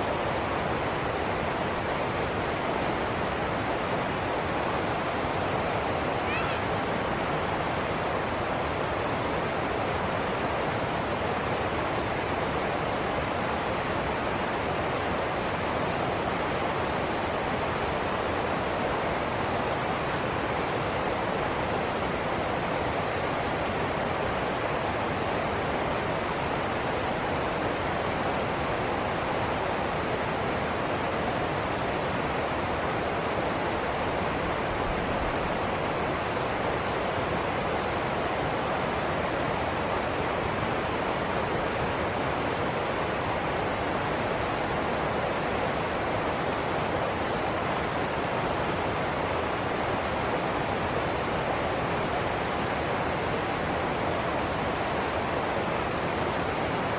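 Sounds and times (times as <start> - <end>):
water rushing over rocks: 0.0 - 56.9.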